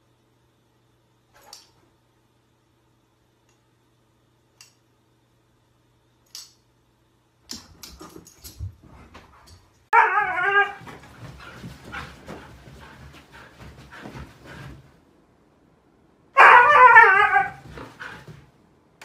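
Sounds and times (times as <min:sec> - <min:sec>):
husky howling call: 0:10.0 - 0:10.8, 0:16.4 - 0:17.6
dog moving with scuffs and knocks: 0:10.7 - 0:15.0, 0:17.6 - 0:18.6.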